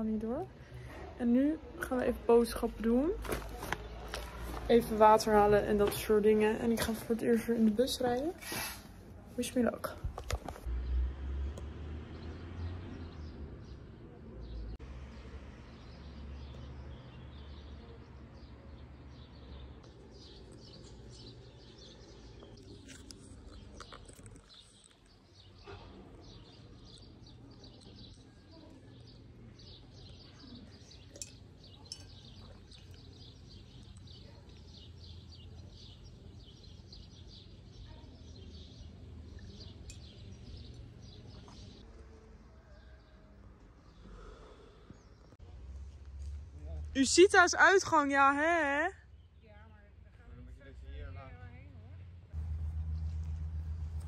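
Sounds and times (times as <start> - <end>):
small birds chirping: 12.2 - 50.5.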